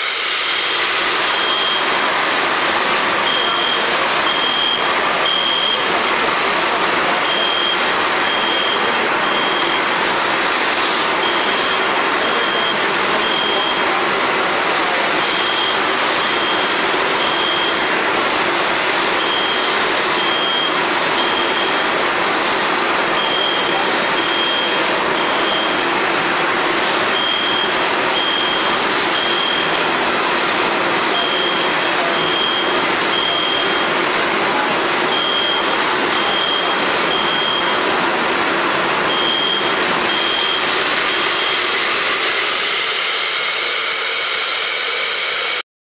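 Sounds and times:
gas discharge hissing: 0.0 - 2.7, 9.8 - 12.0, 40.1 - 45.6
alarm beeping: 1.2 - 1.9, 3.2 - 6.0, 7.1 - 10.0, 10.7 - 14.0, 15.1 - 17.9, 19.1 - 22.0, 23.1 - 25.9, 27.1 - 29.9, 31.1 - 34.0, 35.0 - 37.8, 39.0 - 45.6.

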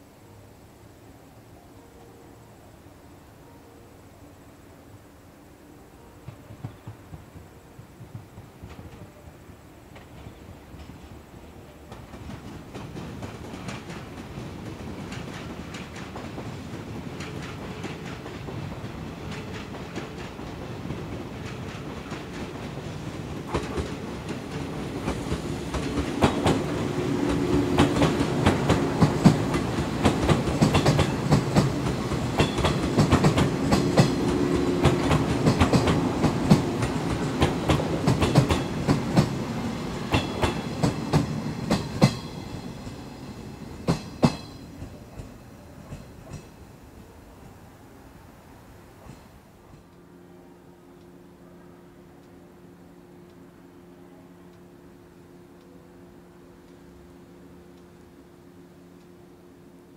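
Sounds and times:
train low hum: 0.0 - 59.9
train wheels clicking over rail joints: 11.9 - 46.7.

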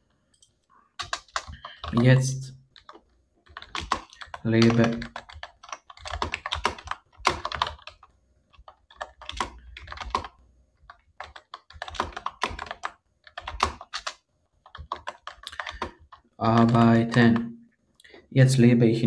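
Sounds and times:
typing on a computer keyboard: 0.4 - 17.5.

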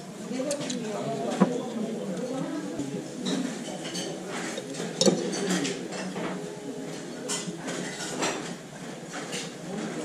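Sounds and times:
chopsticks clinking against dishes: 3.2 - 9.6.

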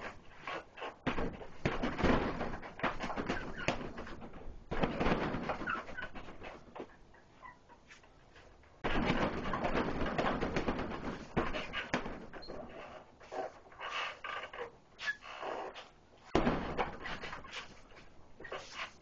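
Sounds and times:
punches hitting heavy bag: 16.3 - 17.4.

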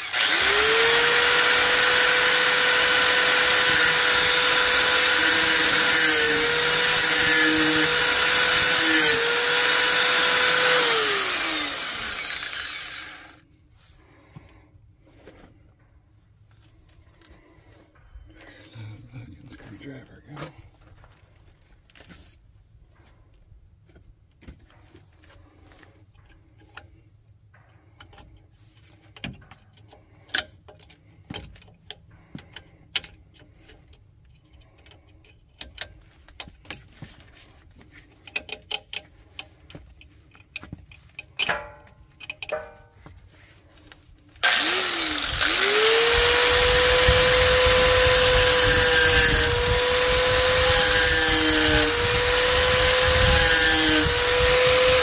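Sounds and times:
angle grinder cutting: 0.0 - 13.4, 44.4 - 55.0.

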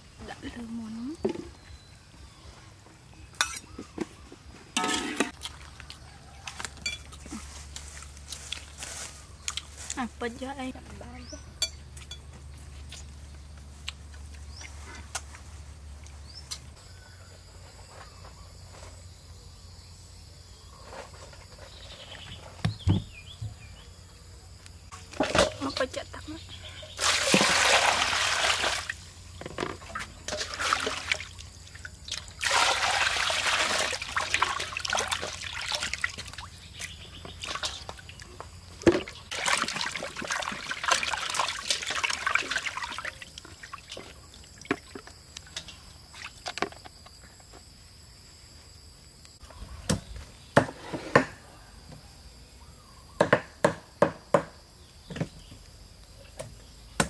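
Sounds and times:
water sloshing and splashing: 4.8 - 10.0, 25.0 - 26.0, 26.8 - 46.9
water pouring into steel bowl: 32.4 - 36.3, 39.3 - 44.1
knives chopping on wooden blocks: 53.2 - 54.5.

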